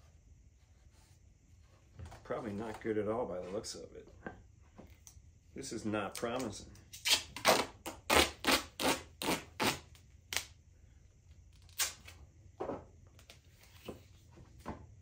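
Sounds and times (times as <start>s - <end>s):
duct tape ripping off roll: 6.9s - 10.6s, 11.5s - 12.2s.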